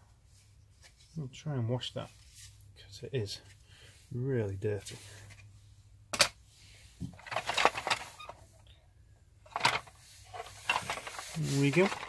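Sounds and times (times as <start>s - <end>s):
plastic toy clicking and clattering: 7.2s - 8.4s, 9.5s - 12.0s.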